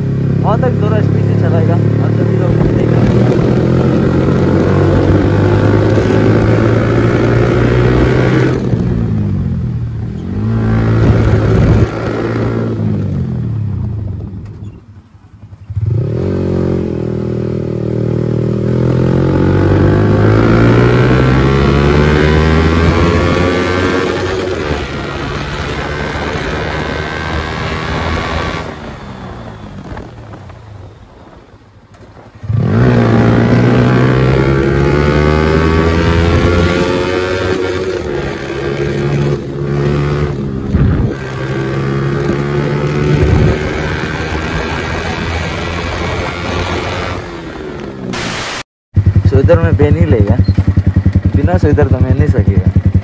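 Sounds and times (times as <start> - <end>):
motorcycle engine at speed: 0.0 - 53.0.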